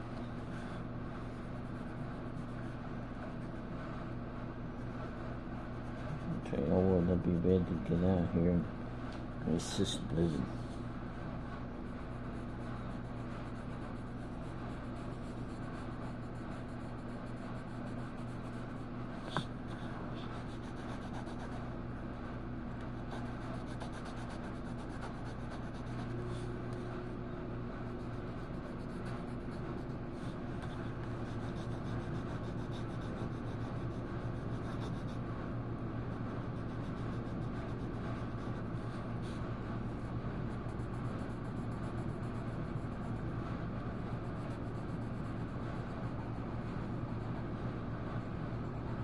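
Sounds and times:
colouring scratching on paper: 12.2 - 21.6, 23.0 - 26.5, 27.9 - 35.2, 36.4 - 39.4, 40.0 - 43.2.

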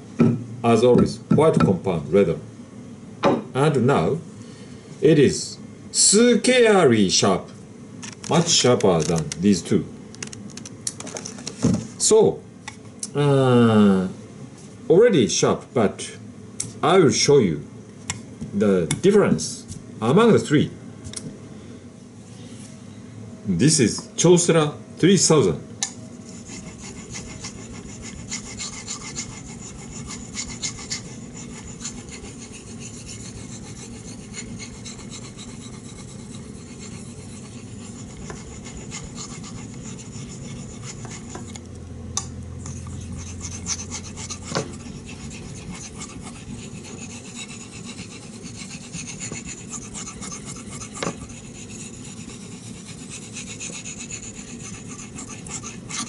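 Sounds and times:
knife rubbing on whetstone: 26.1 - 41.6, 42.6 - 56.0.

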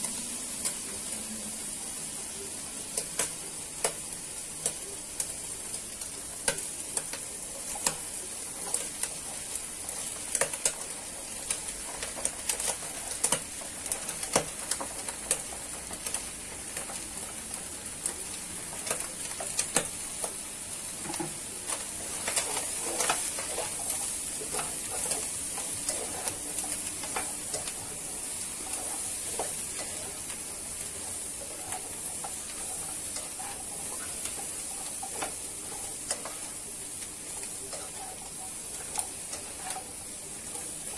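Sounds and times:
food sizzling in hot oil: 0.0 - 40.9.

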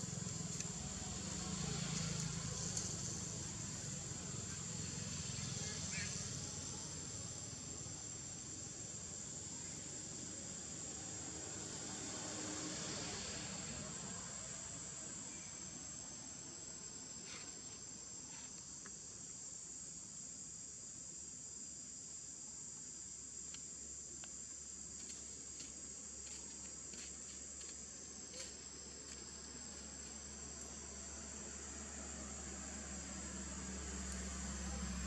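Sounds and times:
high-pitched insect trill: 0.0 - 35.0
faint ticks: 1.9 - 3.1, 22.7 - 24.4.

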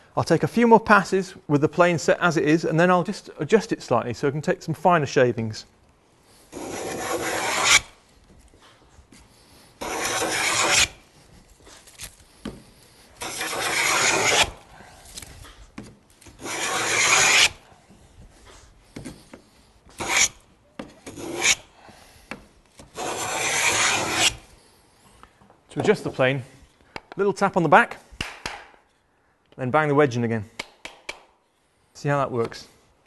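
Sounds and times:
wooden plane rasping on board: 6.5 - 7.9, 9.8 - 11.0, 12.4 - 14.6, 16.4 - 17.6, 19.0 - 21.6, 22.3 - 24.4.

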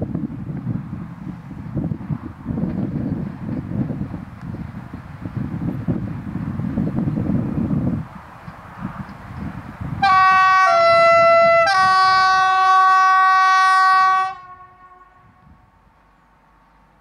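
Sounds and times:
diesel locomotive air horn: 10.0 - 15.7.

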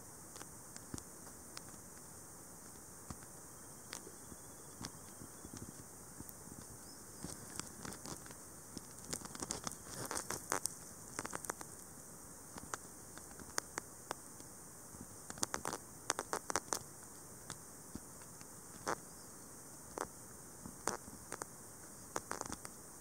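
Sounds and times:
steady hiss: 0.0 - 23.0
small clicks and taps: 4.8 - 11.8, 12.5 - 14.5, 15.3 - 16.9, 22.1 - 22.8.

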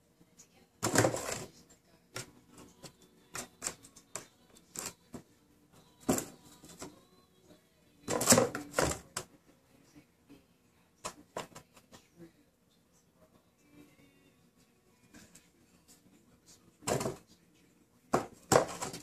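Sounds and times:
cats playing with cardboard box: 0.8 - 2.8, 8.1 - 9.3, 18.2 - 19.0.

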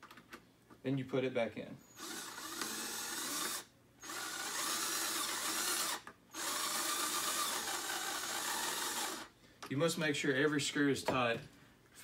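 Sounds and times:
cordless drill driving screw: 2.0 - 9.3.

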